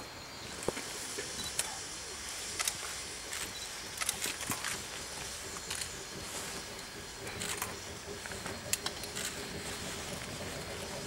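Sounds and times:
steam venting hiss: 0.0 - 11.0
sharp clicks: 2.5 - 9.5.

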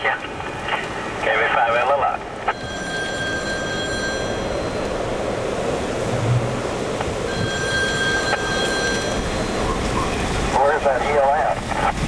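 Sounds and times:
rushing storm wind: 0.0 - 12.0
steady high tone: 2.5 - 5.9, 7.2 - 10.8.

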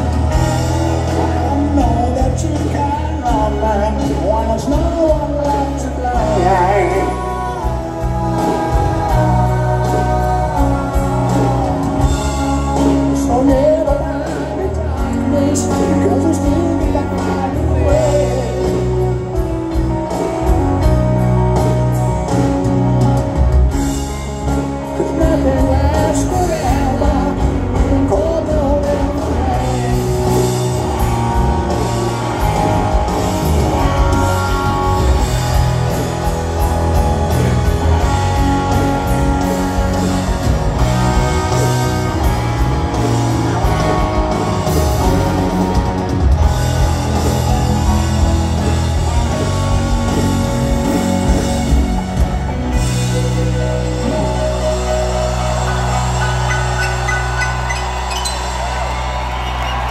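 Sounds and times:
bass: 0.0 - 59.9
drums: 0.0 - 59.9
electric guitar lead bending notes: 0.0 - 59.9
grand piano: 0.0 - 59.9
person singing: 1.1 - 19.4, 24.6 - 30.8.

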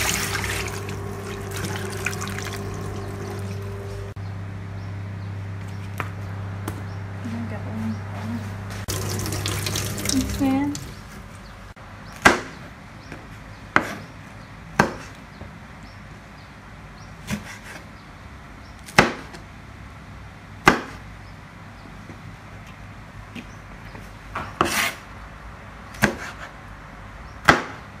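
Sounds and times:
tap water running: 0.0 - 4.2, 8.9 - 11.4
knife chopping on cutting board: 13.8 - 14.1, 26.0 - 26.5.

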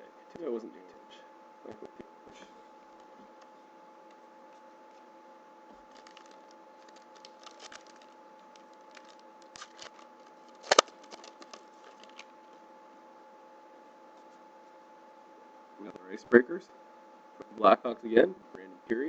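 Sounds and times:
faint steady hum: 0.0 - 19.0
foil wrapper crinkling and tearing: 5.8 - 12.3
cards clicking when handled: 9.0 - 12.3.

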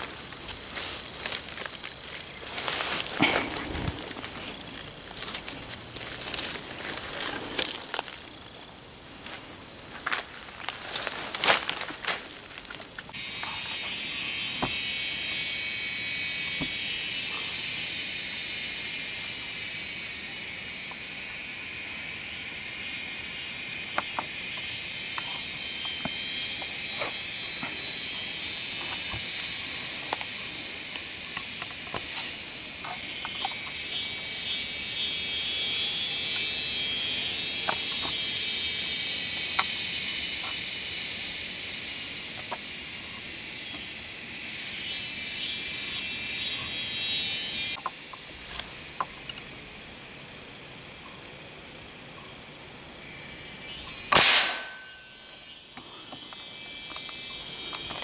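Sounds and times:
high buzzing insect chorus: 0.0 - 58.0
high-pitched insect whine: 0.0 - 58.0
rhythmic high insect chirp: 0.0 - 58.0
sharp crack: 54.1 - 55.0.

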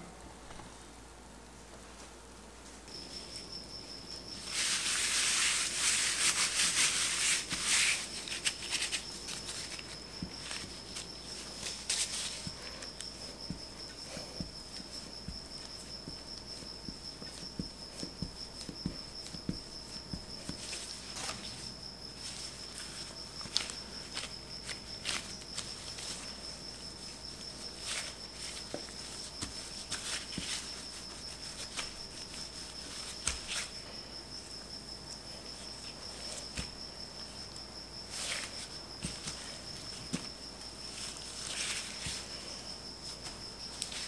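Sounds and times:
rolling pin rolling dough: 4.4 - 33.9.

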